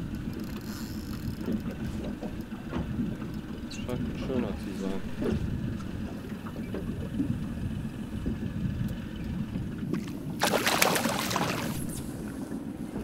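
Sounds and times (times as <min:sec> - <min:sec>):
water around a boat: 0:00.0 - 0:13.0
wind: 0:00.0 - 0:13.0
fish splashing at surface: 0:10.4 - 0:12.0.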